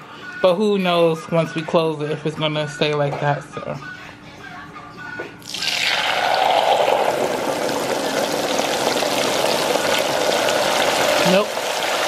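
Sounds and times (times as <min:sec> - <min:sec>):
oil bubbling and sizzling in fryer: 0:05.4 - 0:12.0.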